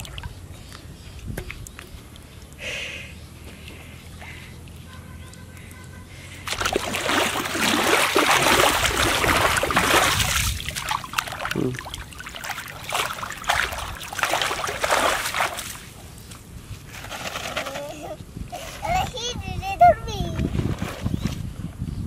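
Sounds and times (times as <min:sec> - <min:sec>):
muddy water splashing: 0:00.0 - 0:00.4, 0:06.2 - 0:16.5.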